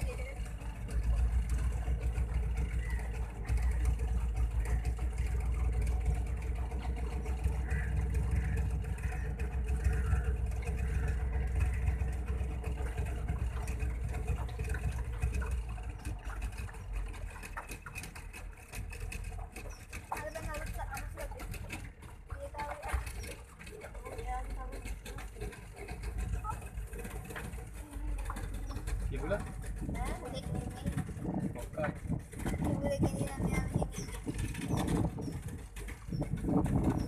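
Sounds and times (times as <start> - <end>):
boat motor running: 0.0 - 37.0.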